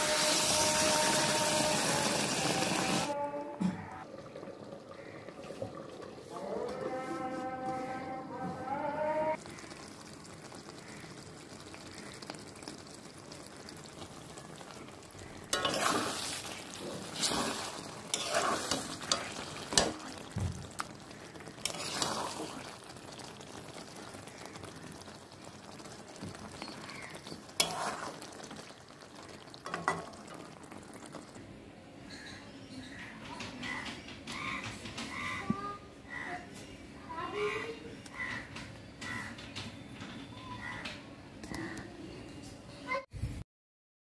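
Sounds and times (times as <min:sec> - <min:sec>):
curry sizzling in a pan: 0:00.0 - 0:03.2, 0:09.3 - 0:32.4
metal spatula scraping a pan: 0:15.5 - 0:20.1, 0:21.6 - 0:22.5, 0:27.5 - 0:28.3.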